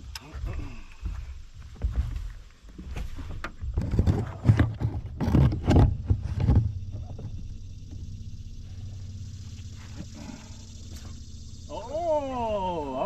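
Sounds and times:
low rumble: 5.2 - 13.0.

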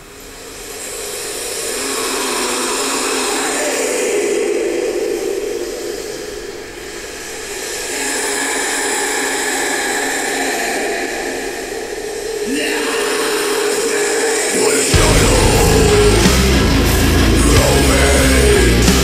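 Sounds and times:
heavy metal music: 12.1 - 19.0.

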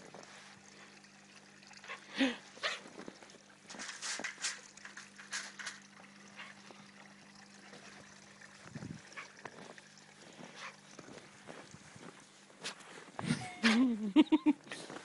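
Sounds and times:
footsteps crunching in snow: 9.5 - 13.3.

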